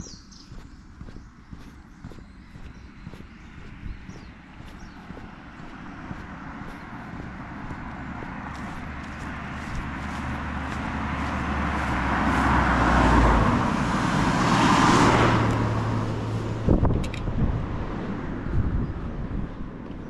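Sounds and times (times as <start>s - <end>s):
vehicle passing close by: 0.0s - 19.7s.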